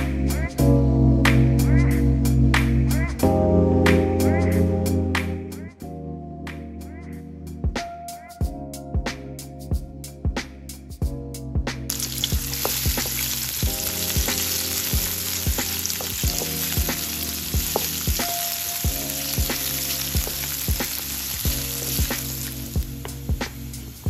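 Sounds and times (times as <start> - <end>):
background music with steady beat: 0.0 - 24.0
garlic sizzling in hot oil: 11.9 - 24.0
spatula stirring in a wok: 11.9 - 24.0.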